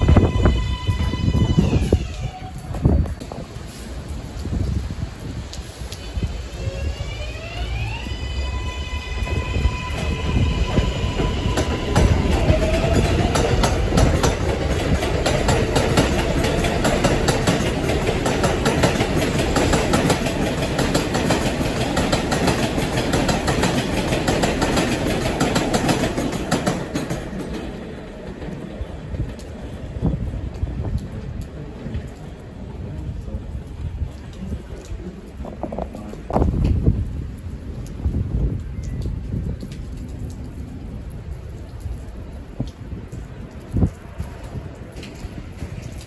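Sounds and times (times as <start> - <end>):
train rumble: 0.0 - 46.0
train wheels clattering over rail joints: 10.0 - 28.6.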